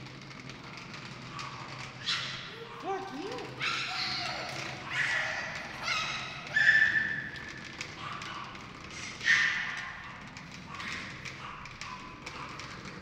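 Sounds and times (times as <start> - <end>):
toddler squealing: 3.6 - 7.3.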